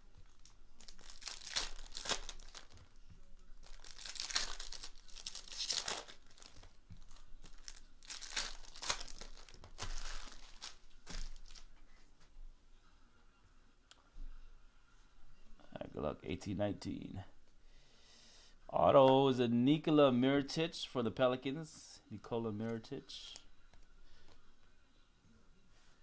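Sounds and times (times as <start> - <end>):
foil packs tearing and crinkling: 0.4 - 2.9, 3.6 - 11.7.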